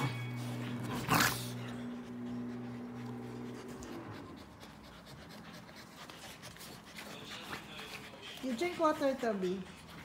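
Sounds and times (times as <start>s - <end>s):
steady low hum: 0.0s - 5.4s
dog paws scratching fabric cushion: 2.1s - 10.0s.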